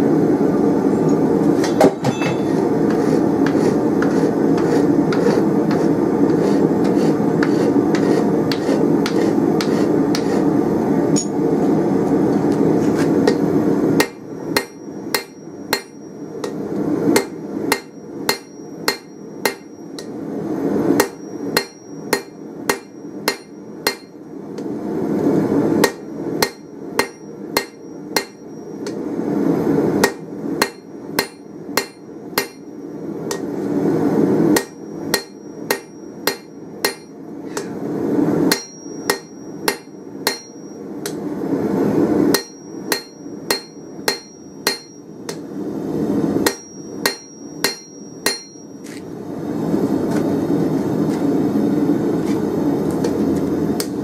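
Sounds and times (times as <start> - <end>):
hammer striking steel on anvil: 1.6 - 2.7, 11.1 - 11.4, 13.2 - 20.2, 21.0 - 24.2, 25.8 - 29.0, 30.0 - 33.5, 34.6 - 37.8, 38.5 - 41.2, 42.3 - 45.5, 46.4 - 48.8.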